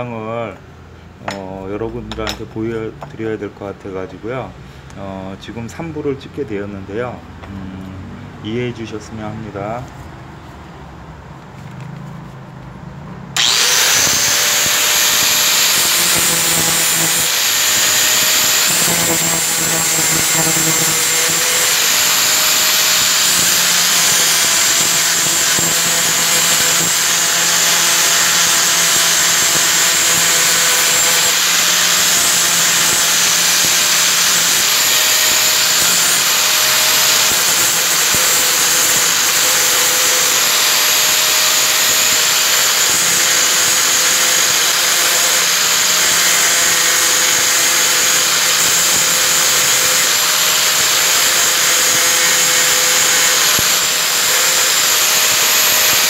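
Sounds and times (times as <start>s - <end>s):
angle grinder grinding metal: 13.4s - 56.0s.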